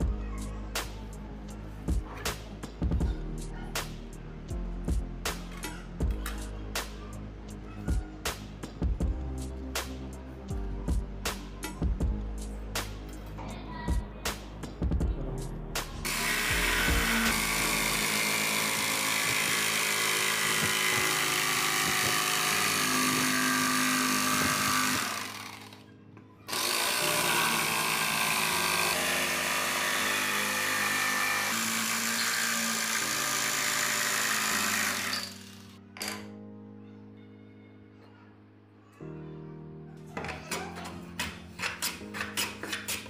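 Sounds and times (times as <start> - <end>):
background music: 0.0 - 43.0
electric jigsaw cutting wood: 16.0 - 25.8, 26.5 - 35.8.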